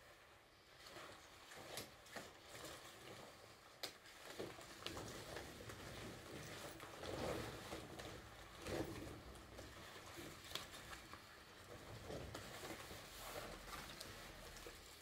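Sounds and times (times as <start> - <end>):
rubber coat rustling: 0.6 - 15.0.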